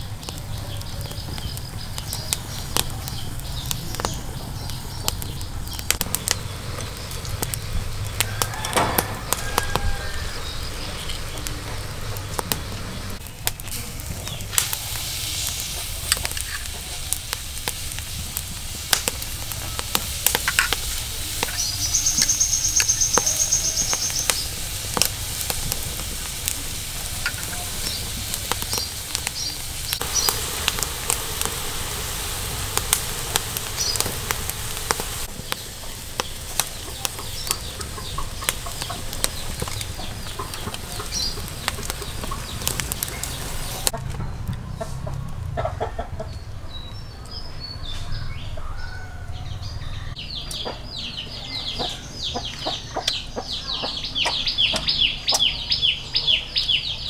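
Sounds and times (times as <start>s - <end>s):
shellfish sizzling on fire: 0.0s - 45.5s
birds calling: 0.0s - 57.0s
chickens clucking: 14.0s - 47.3s, 47.9s - 57.0s.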